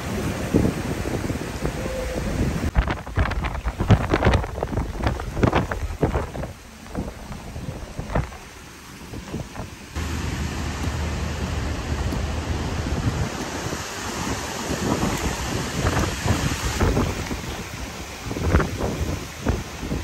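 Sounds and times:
flowing floodwater: 0.0s - 20.0s
strong wind buffeting microphone: 0.0s - 20.0s
waves washing: 0.0s - 20.0s.

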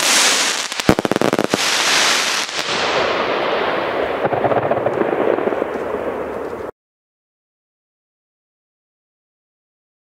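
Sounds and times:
sharp crackling pops: 0.0s - 2.8s
firework hissing: 0.0s - 3.3s.

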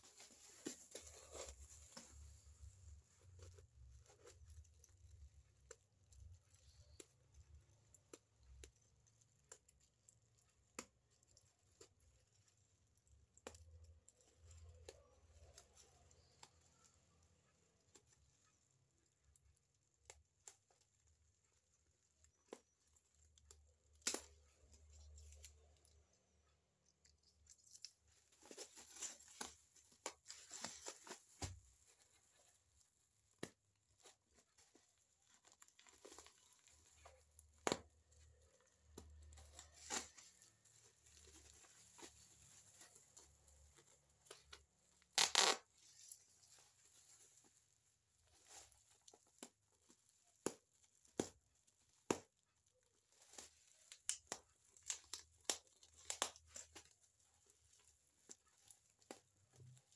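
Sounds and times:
plastic wrapping crinkling: 0.0s - 7.0s, 26.7s - 59.9s
tape ripping: 44.3s - 46.4s.

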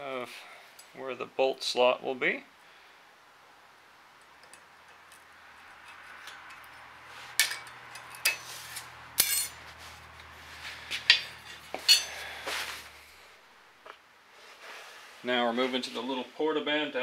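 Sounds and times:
metal tools clinking: 4.4s - 9.7s, 10.9s - 12.4s.

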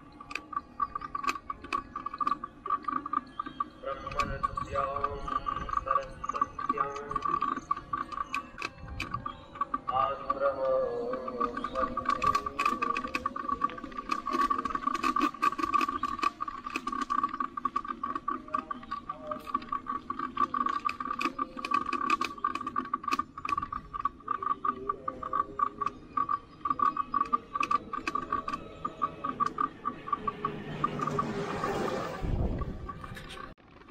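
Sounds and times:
bicycle clicking and rattling: 0.0s - 33.9s.

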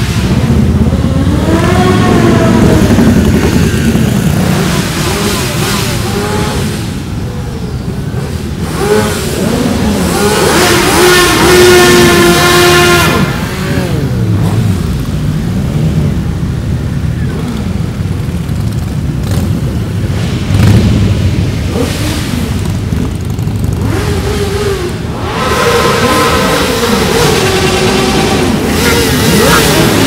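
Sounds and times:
motorcycles riding past: 7.8s - 30.0s.

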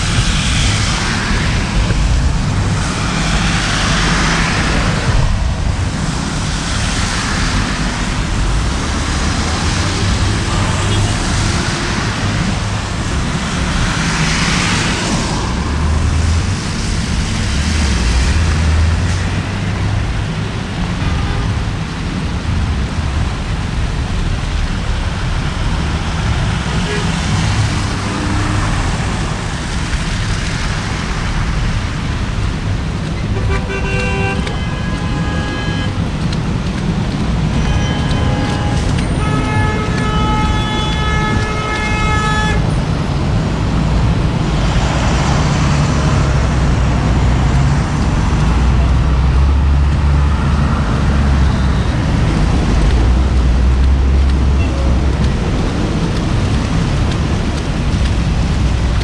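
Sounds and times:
traffic on wet streets: 0.0s - 59.0s
car horns honking: 33.3s - 36.0s, 37.5s - 42.7s.

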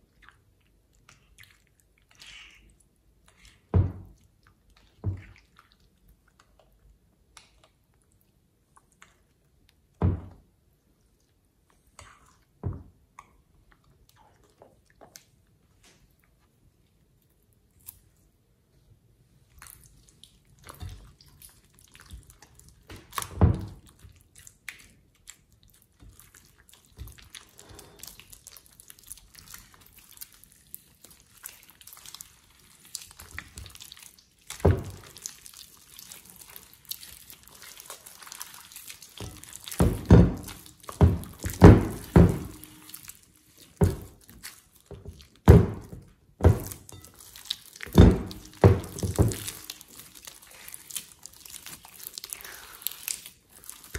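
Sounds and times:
slime squelching: 0.0s - 53.9s.

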